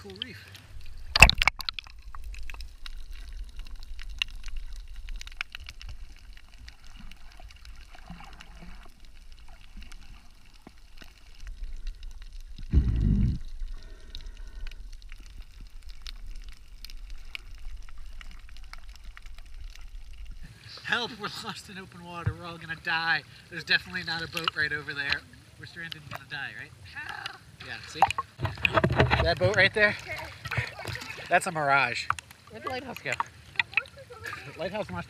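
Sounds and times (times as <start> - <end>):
faint clicks and crackles: 0.0 - 35.0
muffled underwater rumble: 0.4 - 20.5
low underwater whoosh: 0.6 - 20.5.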